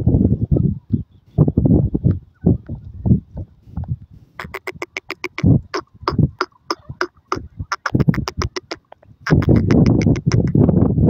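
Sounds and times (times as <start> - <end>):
francolin calling: 4.4 - 10.5.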